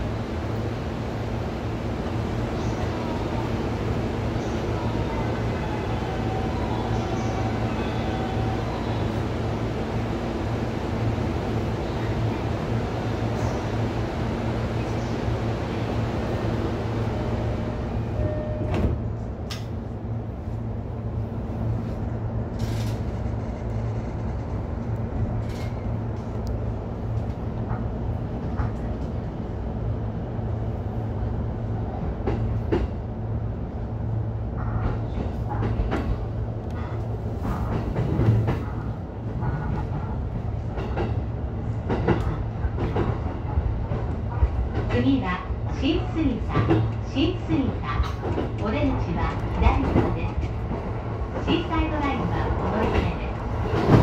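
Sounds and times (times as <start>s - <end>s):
low train hum: 0.0s - 54.0s.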